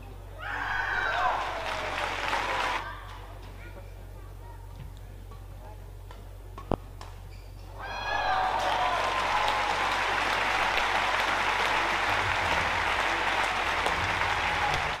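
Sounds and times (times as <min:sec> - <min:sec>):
crowd applauding: 0:01.1 - 0:02.8, 0:08.2 - 0:15.0.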